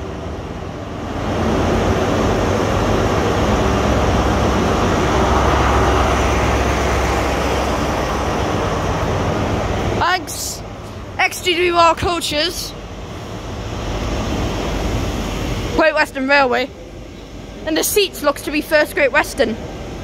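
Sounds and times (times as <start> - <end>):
diesel train engine pulling away: 0.0 - 11.2
train coaches rolling past: 0.0 - 20.0.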